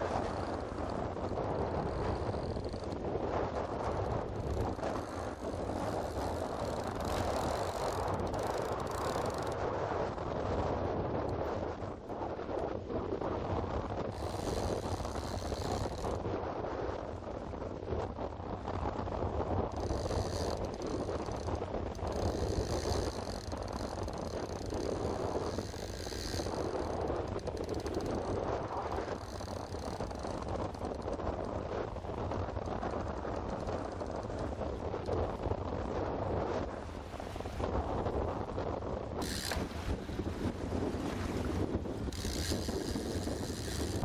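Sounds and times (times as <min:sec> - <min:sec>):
outboard motor running: 0:00.0 - 0:09.8, 0:14.1 - 0:16.2, 0:39.2 - 0:44.0
choppy waves: 0:00.0 - 0:44.0
wind: 0:00.0 - 0:44.0.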